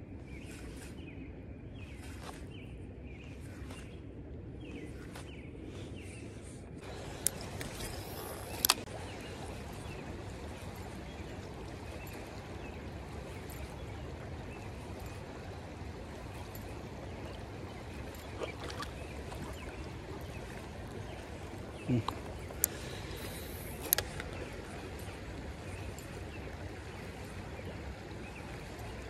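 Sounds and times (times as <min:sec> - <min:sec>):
creek water running: 0:06.8 - 0:29.0.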